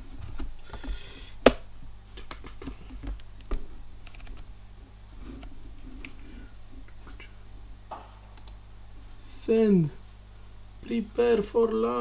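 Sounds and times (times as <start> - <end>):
clicking on a computer keyboard: 8.4 - 8.6.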